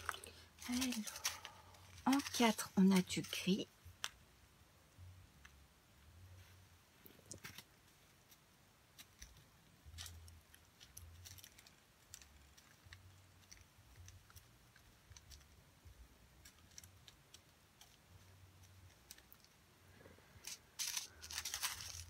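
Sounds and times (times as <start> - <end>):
small plastic pieces clicking: 8.9 - 15.6, 16.4 - 19.6.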